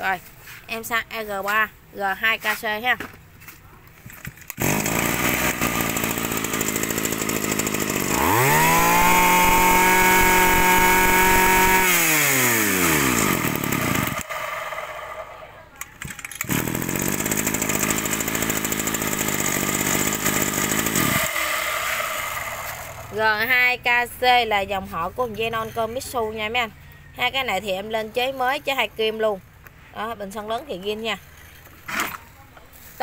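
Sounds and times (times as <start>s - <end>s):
brush cutter engine revving: 4.4s - 23.4s.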